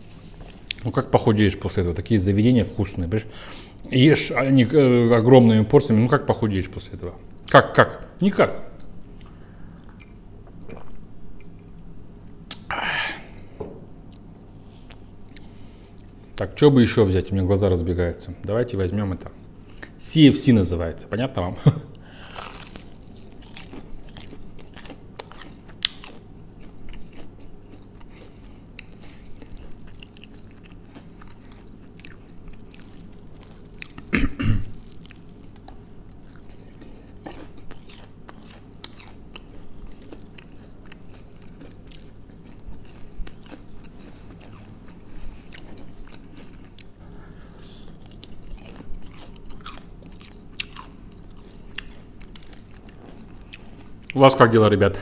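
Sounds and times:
person chewing crispy food: 0.0s - 0.9s, 22.0s - 54.2s.

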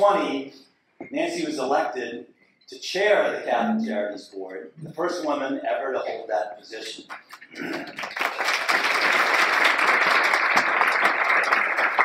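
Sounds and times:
audience applauding: 7.1s - 12.0s.

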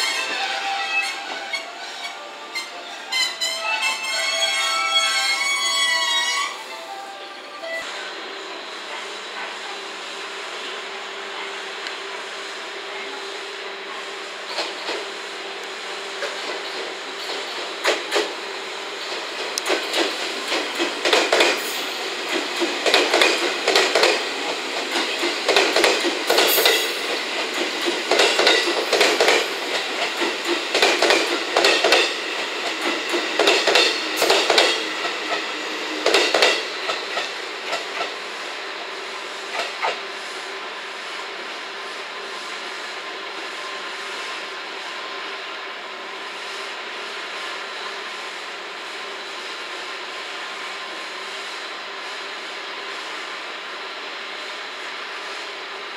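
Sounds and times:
electric train passing slowly: 0.0s - 55.9s
train wheels knocking on rail joints: 16.2s - 18.4s, 19.0s - 38.2s.

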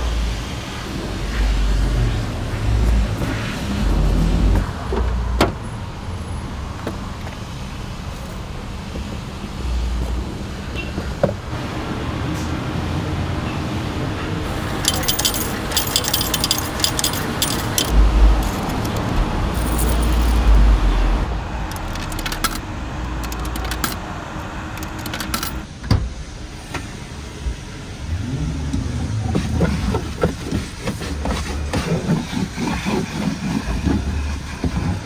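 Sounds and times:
vehicle noise with low rumble: 0.0s - 35.0s
keys jangling: 14.7s - 20.6s, 21.7s - 24.0s, 24.8s - 25.6s.

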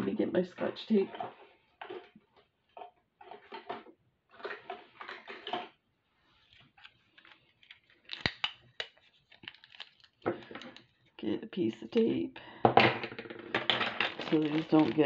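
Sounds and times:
objects rustling on a desk: 1.0s - 11.1s, 13.0s - 15.0s.

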